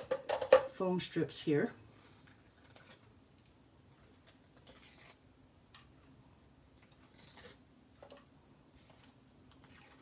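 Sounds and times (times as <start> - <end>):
paper backing peeling crinkles: 2.0 - 3.5, 4.1 - 5.2, 6.8 - 7.6.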